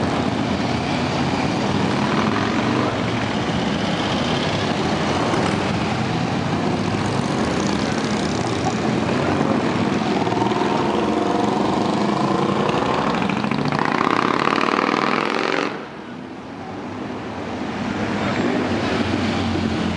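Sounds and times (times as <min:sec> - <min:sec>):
motorcycles riding past: 0:01.4 - 0:16.0.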